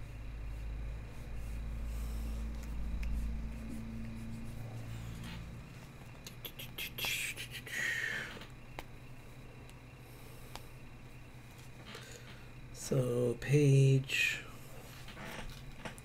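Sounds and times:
low steady hum: 0.0s - 16.0s
stylus tapping and scratching: 0.5s - 7.5s.

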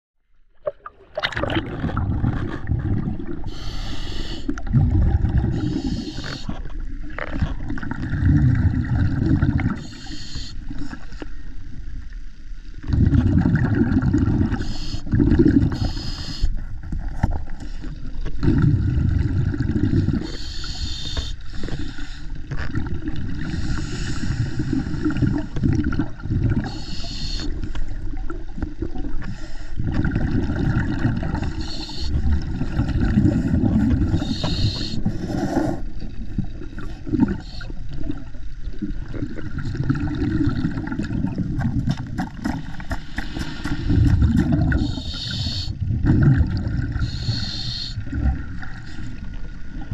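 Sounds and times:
underwater rumble and swish: 0.2s - 49.9s
diver breathing bubbles: 1.2s - 11.4s, 12.8s - 49.9s
scraping against hull: 41.4s - 45.1s.

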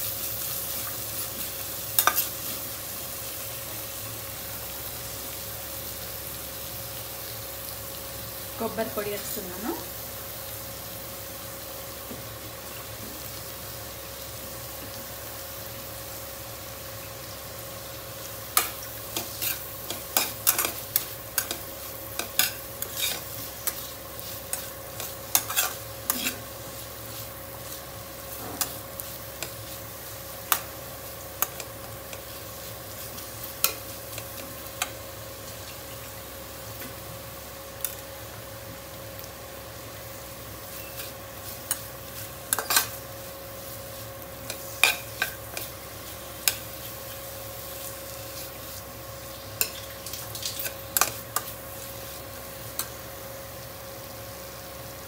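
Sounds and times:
food sizzling in a pan: 0.0s - 55.0s
metal spatula scraping a pan: 19.2s - 21.6s, 22.2s - 26.5s, 40.7s - 43.0s.

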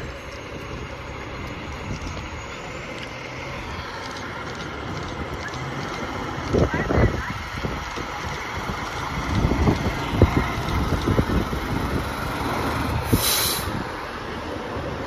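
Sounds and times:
fire truck diesel engine running: 0.0s - 15.0s
air-brake hiss: 13.0s - 13.9s.

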